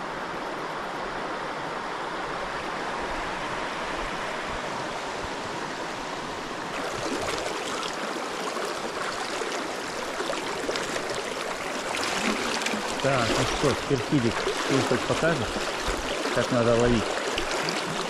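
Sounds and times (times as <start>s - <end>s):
river flowing over stones: 0.0s - 18.0s.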